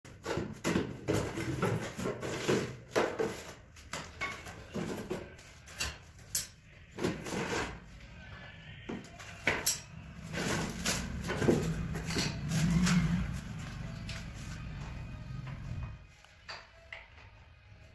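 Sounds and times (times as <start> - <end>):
cardboard rustling and scraping: 0.1 - 5.6, 10.2 - 14.7
parts knocking: 8.9 - 16.1.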